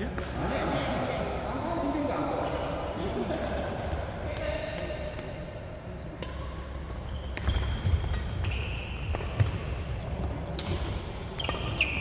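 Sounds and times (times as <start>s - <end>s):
racket hitting shuttlecock: 6.2s - 12.0s
sneakers squeaking on court: 6.7s - 12.0s.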